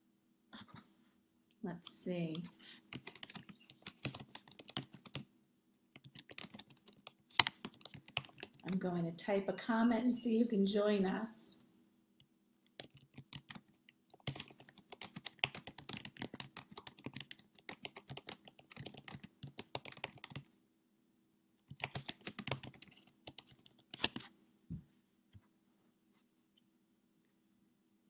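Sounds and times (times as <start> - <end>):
laptop keyboard typing: 2.4 - 5.3, 6.0 - 8.8, 12.7 - 20.5, 21.6 - 24.3.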